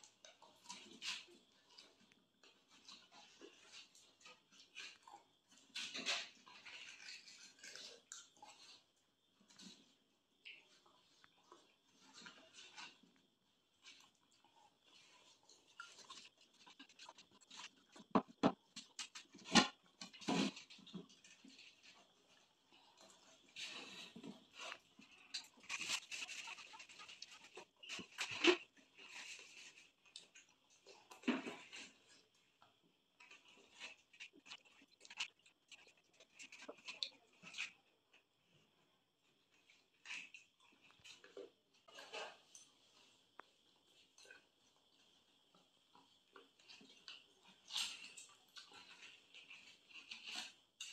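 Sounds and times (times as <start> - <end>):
wet chewing and slurping: 0.1 - 10.0, 10.8 - 38.3
wet eating clicks: 34.1 - 37.7.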